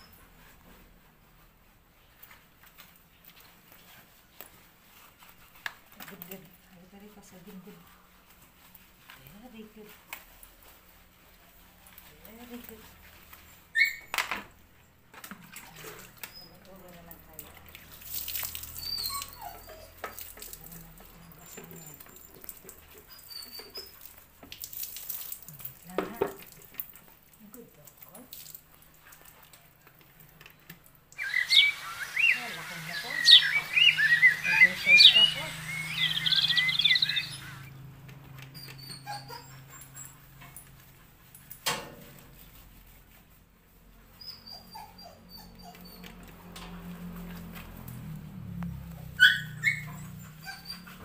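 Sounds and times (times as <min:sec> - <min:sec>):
water splashing onto floor: 0:17.3 - 0:19.4, 0:20.1 - 0:32.1
dog whimpering: 0:18.7 - 0:20.1, 0:31.2 - 0:37.8, 0:38.5 - 0:40.4, 0:44.2 - 0:46.4, 0:49.0 - 0:51.0
bird chirping trill: 0:31.2 - 0:37.8
short high squeaks: 0:31.2 - 0:37.8.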